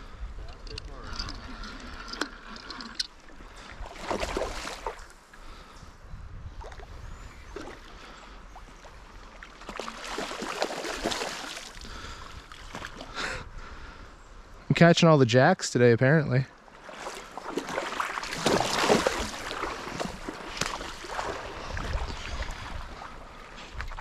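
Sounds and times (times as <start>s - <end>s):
flowing creek: 0.0s - 5.7s, 6.8s - 13.2s, 14.8s - 24.0s
fish splashing and thrashing: 1.0s - 5.1s, 9.3s - 13.1s, 16.8s - 24.0s.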